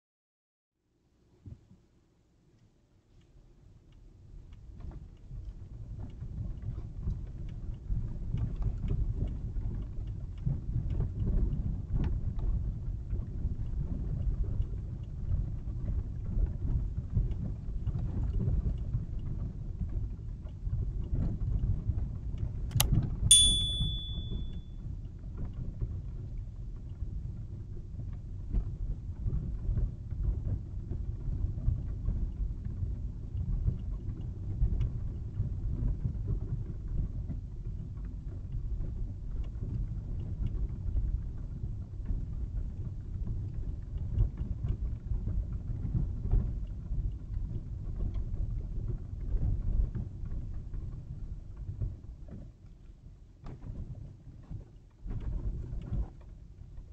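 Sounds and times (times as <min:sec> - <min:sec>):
sharp click: 0:22.7 - 0:24.6
short high-pitched beep: 0:23.3 - 0:24.6.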